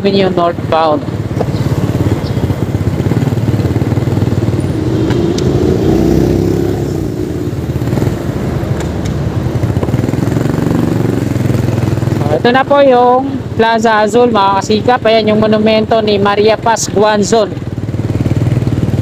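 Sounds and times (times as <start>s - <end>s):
motorcycle engine rumble: 0.0s - 13.6s.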